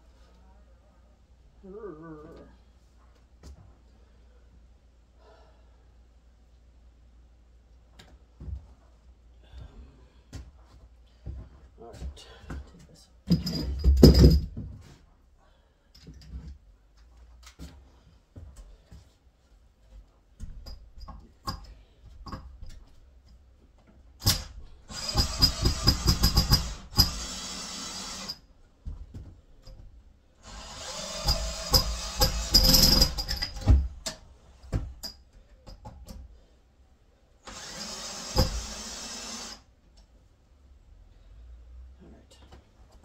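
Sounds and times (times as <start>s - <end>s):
power drill running: 24.2s - 28.4s, 30.4s - 33.4s, 37.4s - 39.6s.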